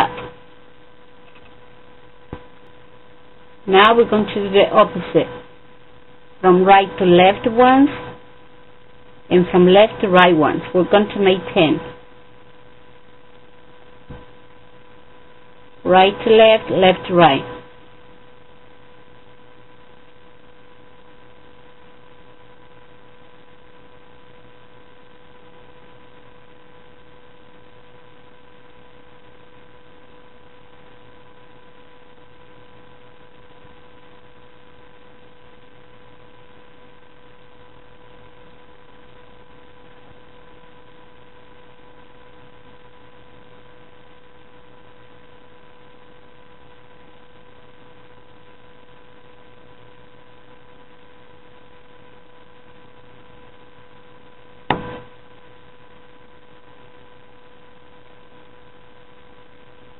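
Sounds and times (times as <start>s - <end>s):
steady electrical whine: 0.0s - 59.9s.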